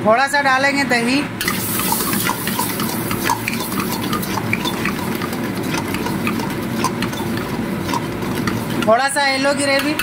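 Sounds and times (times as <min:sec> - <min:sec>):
food sizzling: 0:01.4 - 0:08.9
ladle scraping metal wok: 0:01.4 - 0:10.0.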